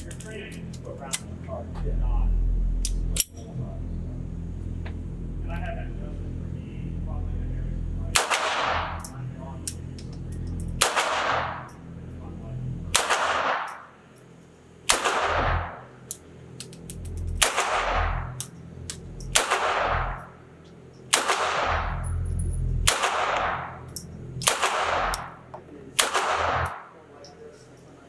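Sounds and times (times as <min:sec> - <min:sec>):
pistol shots echoing indoors: 0:08.1 - 0:09.0, 0:10.8 - 0:11.7, 0:12.9 - 0:13.9, 0:14.9 - 0:15.9, 0:17.4 - 0:18.2, 0:19.3 - 0:20.2, 0:21.1 - 0:22.0, 0:22.8 - 0:25.3, 0:26.0 - 0:27.0.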